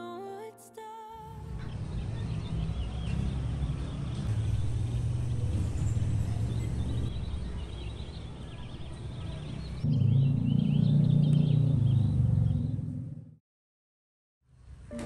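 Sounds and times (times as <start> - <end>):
small birds chirping: 1.5 - 12.9.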